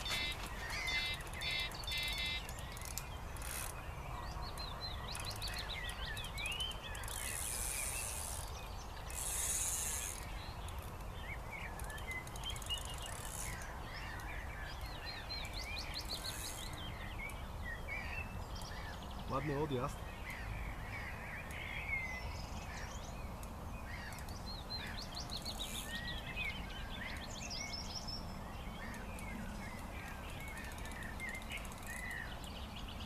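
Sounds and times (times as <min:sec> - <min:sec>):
fishing reel drag ratcheting: 0:00.0 - 0:03.8, 0:05.2 - 0:11.1
birds chirping: 0:00.0 - 0:33.0.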